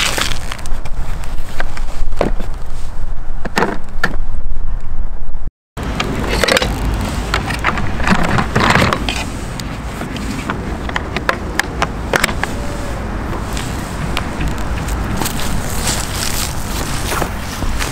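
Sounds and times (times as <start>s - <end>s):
steady low rumble: 4.3s - 17.9s.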